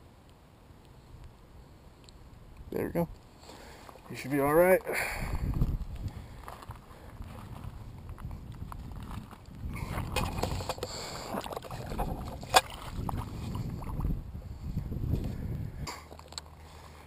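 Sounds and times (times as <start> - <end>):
shallow water splashing: 10.1 - 14.2.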